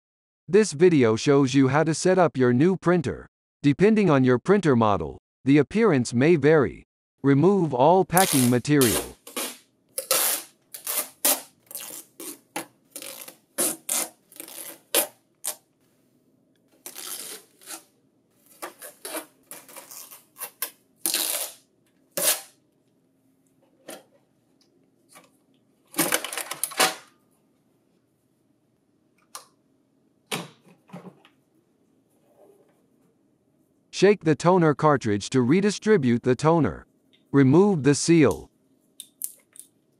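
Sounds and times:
packing tape ripping off plastic: 8.2s - 15.6s, 16.8s - 17.9s, 18.5s - 21.6s, 22.2s - 22.6s.

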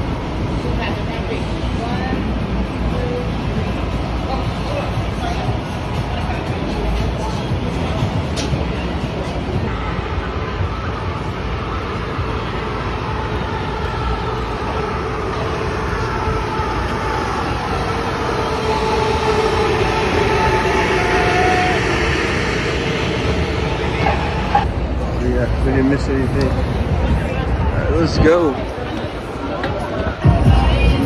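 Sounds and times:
street traffic rumble: 0.0s - 31.0s
whine falling in pitch: 13.6s - 24.8s.

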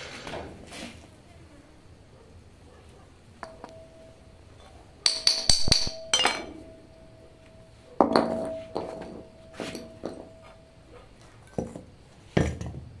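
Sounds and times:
steel pieces clanking on concrete: 3.4s - 10.7s.

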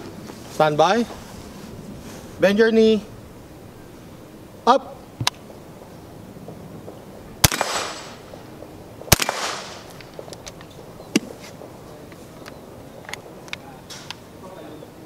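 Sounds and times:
rifle shots with echo: 7.4s - 10.3s.

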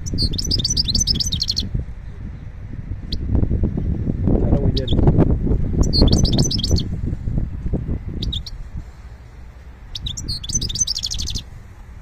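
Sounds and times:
finch twittering: 0.0s - 2.5s, 4.7s - 5.2s, 5.8s - 6.9s, 8.0s - 8.6s, 9.9s - 11.5s
low rumble: 0.0s - 12.0s.

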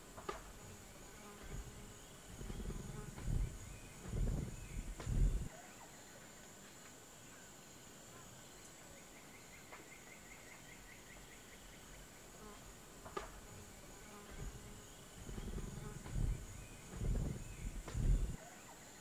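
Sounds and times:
insect drone: 0.0s - 19.0s
low thump: 15.3s - 18.4s.

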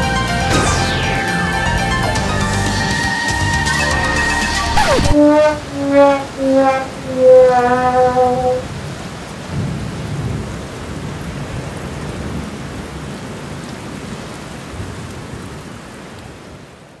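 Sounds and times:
steady rain: 6.9s - 17.0s.

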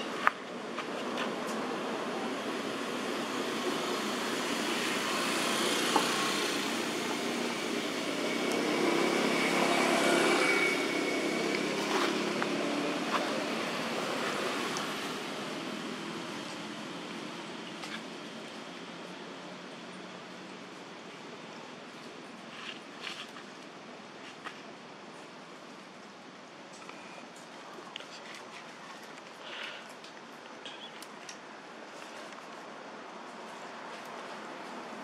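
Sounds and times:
vehicle passing: 2.2s - 17.4s.

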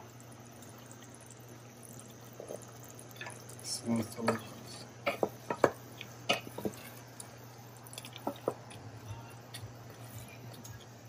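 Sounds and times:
spoon knocking and scraping pot: 5.0s - 6.9s
wet squelching stirring: 5.9s - 11.0s.

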